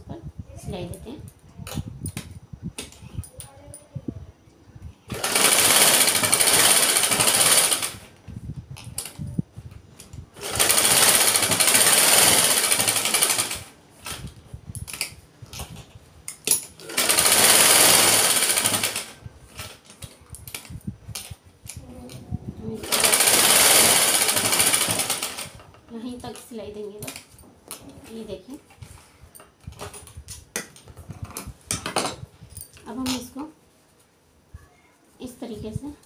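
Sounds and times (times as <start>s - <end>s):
sewing machine stitching: 5.1s - 8.1s, 10.4s - 13.7s, 16.8s - 19.7s, 22.8s - 25.6s.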